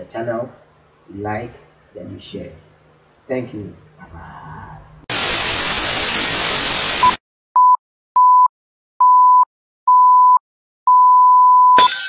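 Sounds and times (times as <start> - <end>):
loud hissing static: 4.8 - 7.2
electronic beeps: 7.0 - 8.4.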